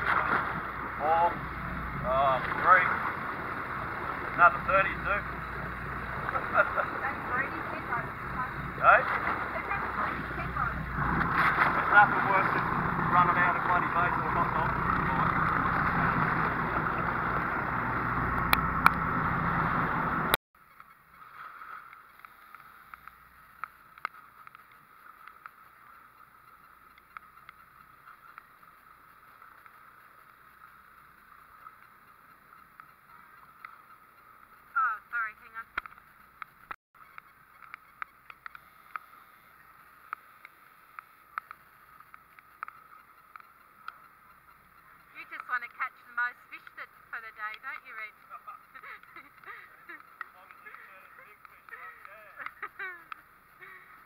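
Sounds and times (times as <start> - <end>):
wind and water noise: 0.0 - 54.0
faint ticks: 20.6 - 54.0
sharp clicks: 21.9 - 54.0.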